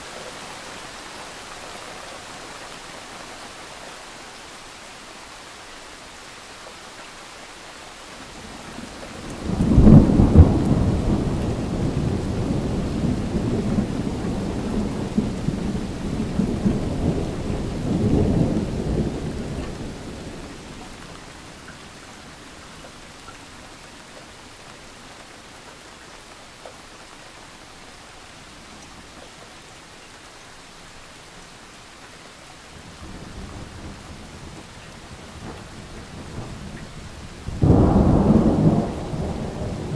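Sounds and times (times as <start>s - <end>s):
steady rain: 0.0s - 39.9s
thunder rumbling: 9.1s - 20.6s, 35.3s - 39.9s.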